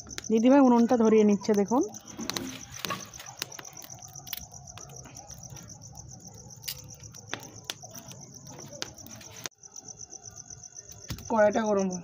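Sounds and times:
wood fire cracking: 0.0s - 9.6s
crickets chirping: 0.0s - 12.0s.

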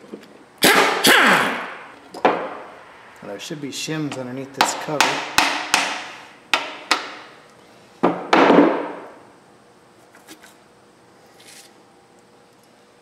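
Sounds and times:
hammer striking metal cover: 4.6s - 7.1s.

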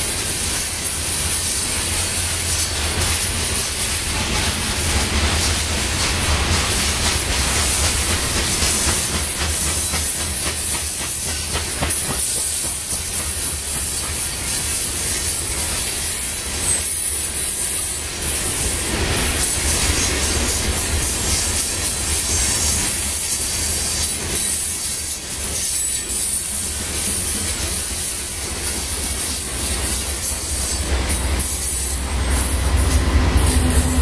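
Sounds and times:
train wheels rumbling on rails: 0.0s - 34.0s.

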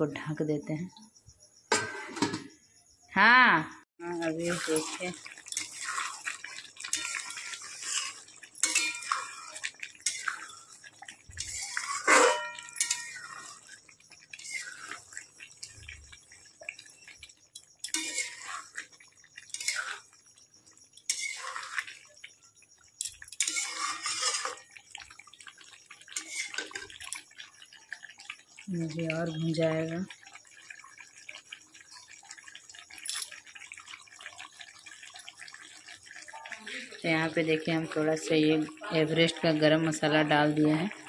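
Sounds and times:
metal spatula scraping a pan: 1.7s - 2.5s, 4.2s - 15.8s, 17.8s - 20.2s, 21.0s - 22.1s, 23.0s - 24.8s, 26.1s - 27.0s
metal clank: 1.7s - 2.6s, 12.0s - 13.2s.

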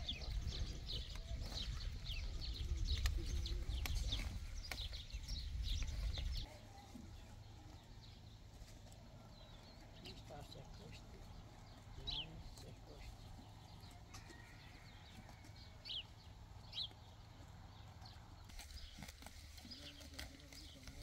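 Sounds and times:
wind rumbling on microphone: 0.0s - 6.4s.

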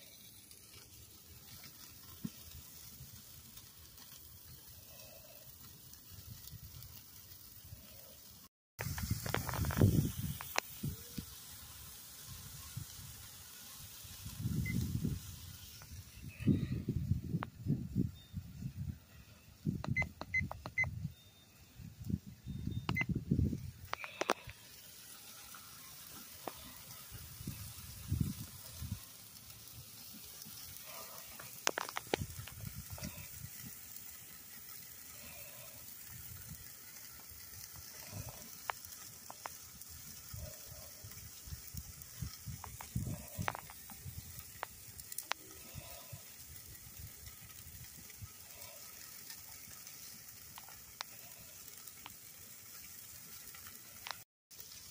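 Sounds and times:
fire popping and crackling: 0.0s - 21.1s, 21.8s - 54.9s
steaks sizzling on grill: 0.0s - 54.9s.

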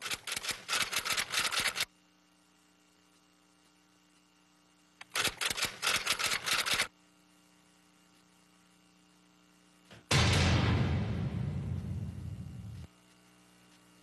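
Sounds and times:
camera shutters firing rapidly: 0.0s - 1.9s, 5.0s - 6.9s
faint steady hum: 0.0s - 14.0s.

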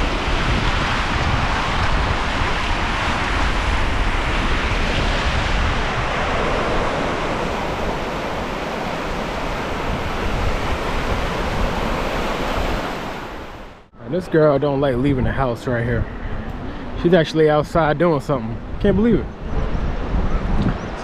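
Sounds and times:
small waves washing over sand: 0.0s - 13.8s
wind rumble on microphone: 0.0s - 13.8s, 14.9s - 21.0s.

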